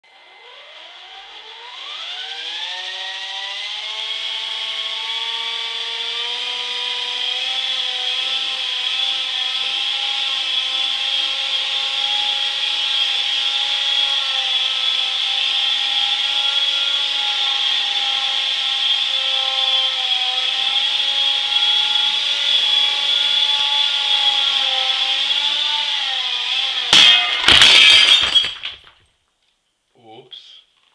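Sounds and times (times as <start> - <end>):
rc helicopter motor whine: 0.1 - 27.0
rotor blades striking lamp: 26.8 - 28.7.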